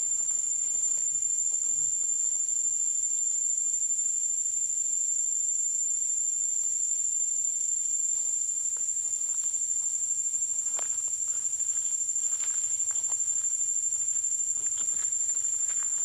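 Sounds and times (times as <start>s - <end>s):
high-pitched insect drone: 0.0s - 16.0s
footsteps rustling in grass: 8.8s - 16.0s.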